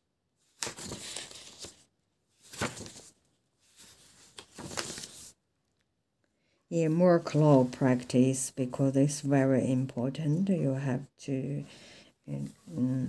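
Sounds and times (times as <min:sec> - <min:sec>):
paper pages turning: 0:00.4 - 0:05.4.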